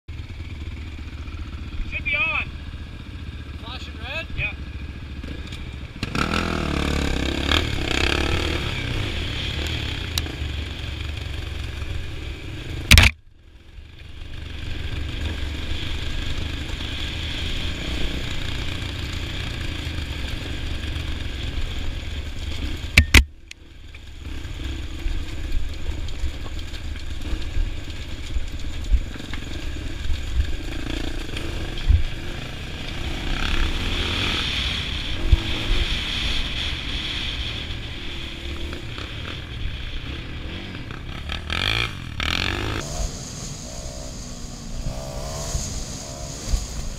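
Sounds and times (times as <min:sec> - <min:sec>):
dirt bike engine running: 0:00.1 - 0:46.9
sharp click: 0:12.9 - 0:13.2, 0:23.0 - 0:23.6.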